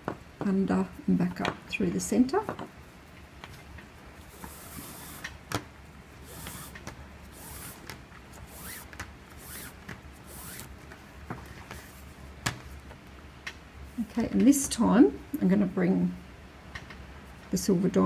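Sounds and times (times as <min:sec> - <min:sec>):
cord swishing through loops: 0:04.0 - 0:12.3.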